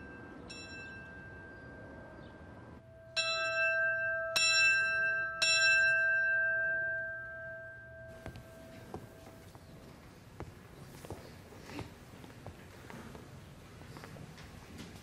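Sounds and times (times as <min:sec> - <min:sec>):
small bell ringing: 0:00.0 - 0:09.3.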